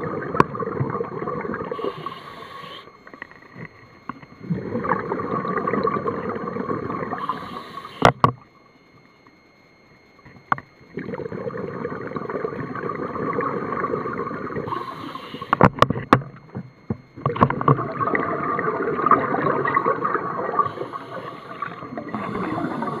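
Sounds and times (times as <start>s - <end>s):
regulator hiss: 1.7s - 3.2s, 7.1s - 8.3s, 14.6s - 15.7s, 20.5s - 23.0s
gurgling exhaled bubbles: 4.4s - 7.4s, 17.3s - 23.0s.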